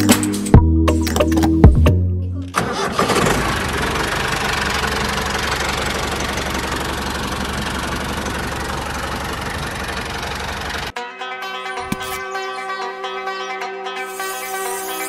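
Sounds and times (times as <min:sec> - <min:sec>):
small tractor engine idling: 0:02.6 - 0:10.9.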